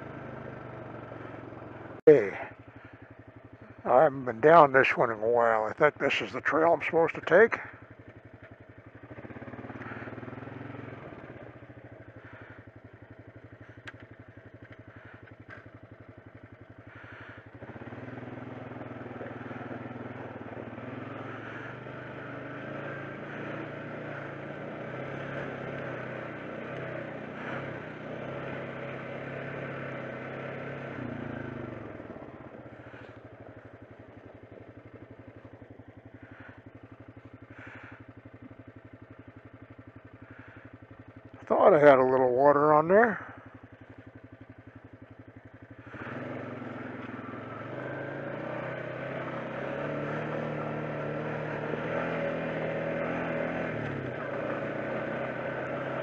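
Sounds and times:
atv engine running: 0:00.0 - 0:56.0
sharp clicks: 0:13.8 - 0:14.8.

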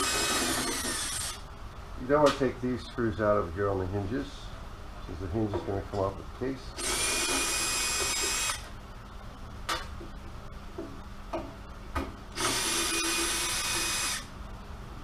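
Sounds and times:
cordless drill whining: 0:00.0 - 0:01.4, 0:06.8 - 0:08.7, 0:12.4 - 0:14.3.

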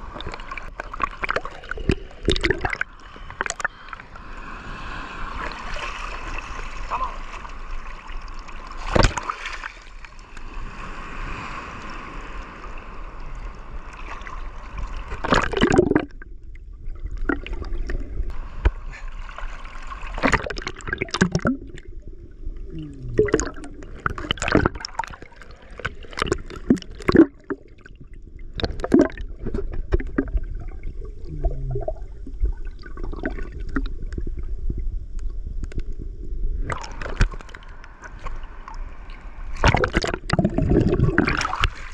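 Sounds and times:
surf washing: 0:02.7 - 0:16.0
muffled underwater gurgling: 0:15.2 - 0:16.2, 0:20.2 - 0:35.1, 0:39.6 - 0:41.7.

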